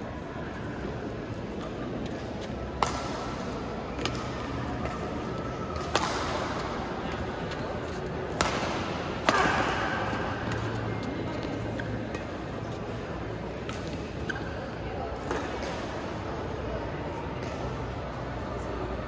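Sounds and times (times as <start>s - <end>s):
racket hitting shuttlecock: 2.4s - 11.0s.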